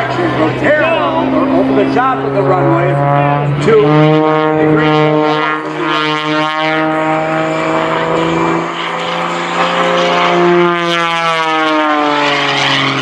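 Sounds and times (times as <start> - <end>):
plane engine and propeller: 0.0 - 13.0.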